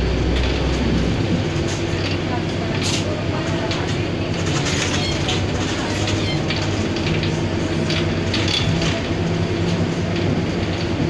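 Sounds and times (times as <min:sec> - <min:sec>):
bus body rattles and clicks: 0:00.0 - 0:11.0
bus diesel drone: 0:00.0 - 0:11.0.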